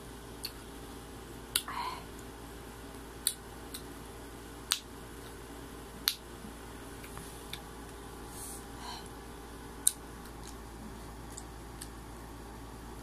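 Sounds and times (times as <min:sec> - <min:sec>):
crunchy fruit being chewed: 0:09.8 - 0:12.2.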